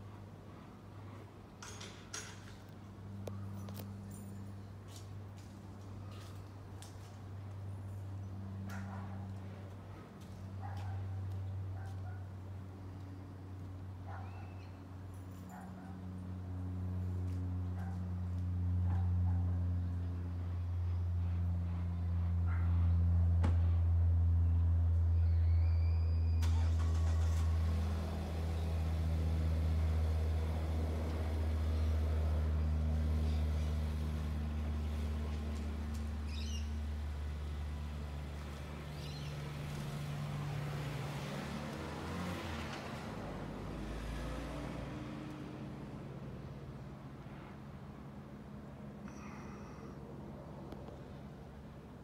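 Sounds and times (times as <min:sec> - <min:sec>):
low engine rumble: 0:00.0 - 0:52.0
bird chirping: 0:36.3 - 0:36.8.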